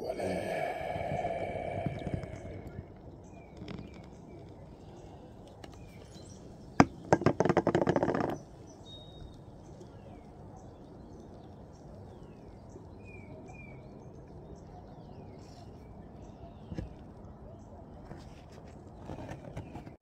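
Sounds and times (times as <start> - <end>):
birds chirping: 0.0 - 16.9.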